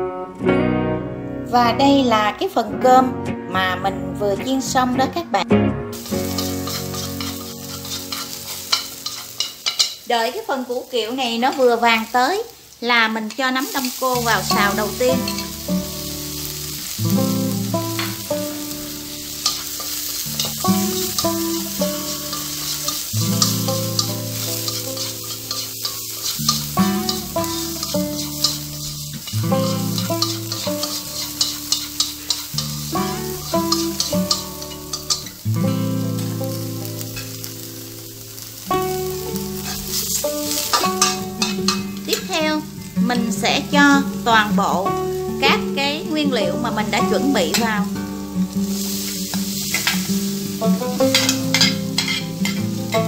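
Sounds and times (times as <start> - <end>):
instrumental music: 0.0 - 10.0, 13.8 - 53.0
vegetables sizzling in hot oil: 5.9 - 53.0
chopsticks clicking against pan: 6.3 - 10.0, 19.4 - 21.6, 22.3 - 28.7, 29.9 - 32.8, 33.6 - 35.3, 40.7 - 42.3.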